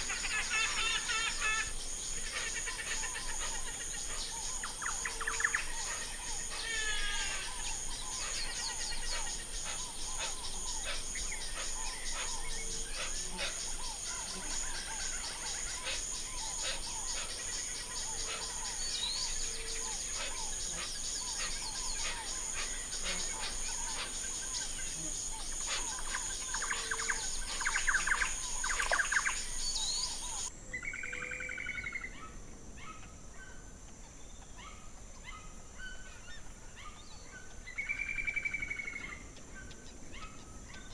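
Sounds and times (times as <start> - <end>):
birds chirping: 0.0 - 32.3
pulsing insect chorus: 0.0 - 40.9.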